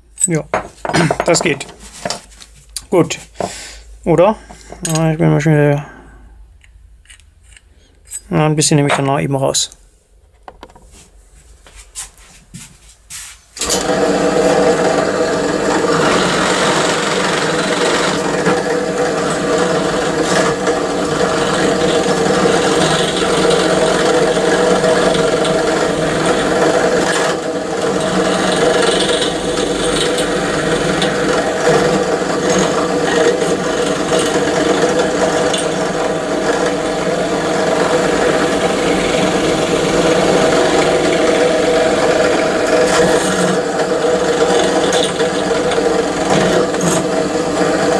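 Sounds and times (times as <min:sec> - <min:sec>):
small power tool grinding: 0:13.6 - 0:47.9.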